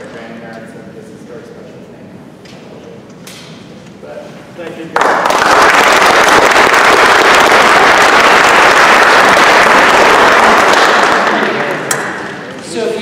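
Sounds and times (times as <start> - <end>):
audience applauding: 4.9 - 12.6.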